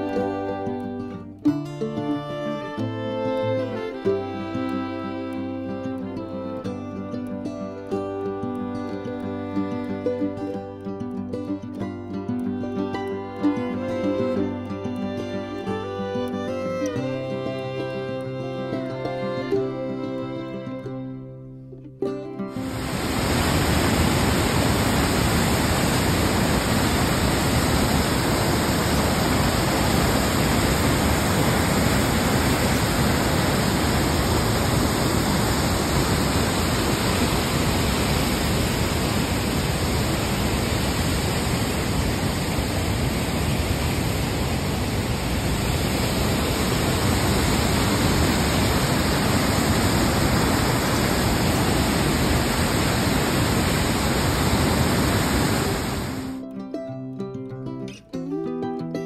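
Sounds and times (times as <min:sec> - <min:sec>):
waterfall rushing: 0:00.0 - 0:06.8, 0:12.5 - 0:19.5, 0:22.5 - 0:56.4.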